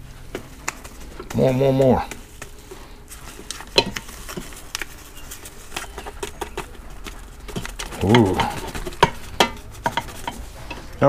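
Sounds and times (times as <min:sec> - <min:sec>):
plastic spoon tapping metal pot: 0:03.7 - 0:04.5, 0:07.5 - 0:10.4.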